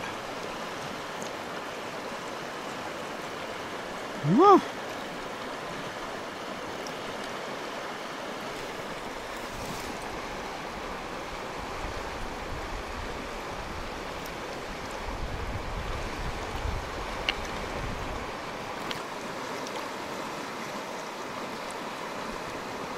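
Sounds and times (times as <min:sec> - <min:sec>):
river water lapping over stones: 0:00.0 - 0:22.9
wind rumble on microphone: 0:14.8 - 0:18.4.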